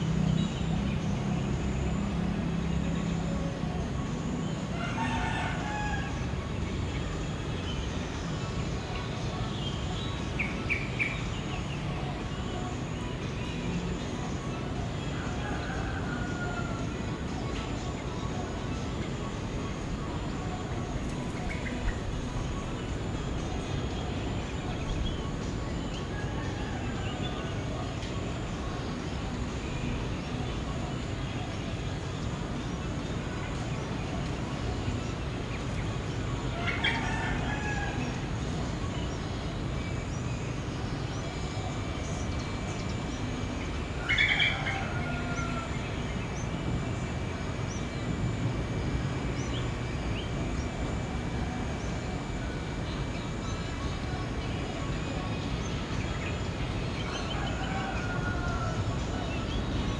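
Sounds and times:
birds chirping and calling: 0:00.0 - 0:48.5, 0:49.3 - 0:59.9.

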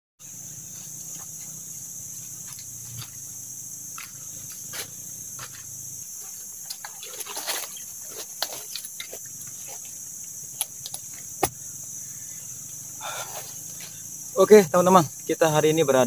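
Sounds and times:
high-pitched insect drone: 0:00.2 - 0:16.0
footsteps crunching on dry leaves: 0:03.9 - 0:09.9.

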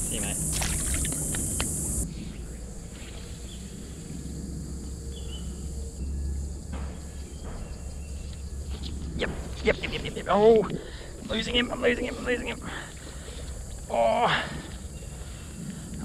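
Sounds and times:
insect drone: 0:00.0 - 0:16.0
fish splashing in water: 0:00.3 - 0:01.8.

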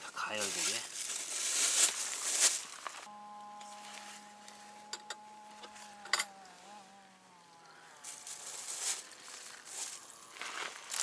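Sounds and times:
electric pump humming: 0:03.0 - 0:11.0.

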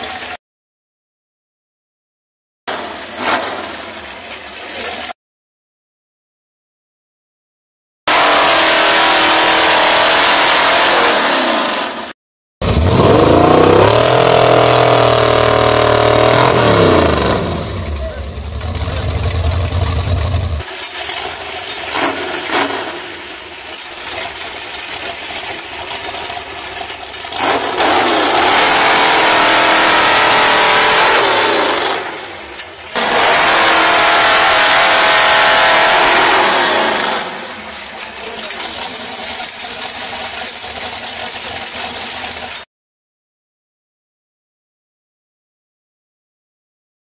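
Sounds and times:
chainsaw cutting logs: 0:08.1 - 0:12.0, 0:27.4 - 0:32.3, 0:32.9 - 0:37.5.

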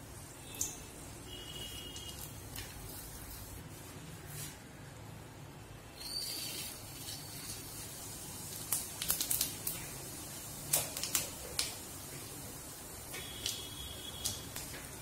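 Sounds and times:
seeds sizzling in hot oil: 0:06.0 - 0:15.0
crackling pops of spluttering seeds: 0:08.5 - 0:10.0, 0:10.6 - 0:12.3, 0:13.1 - 0:15.0.

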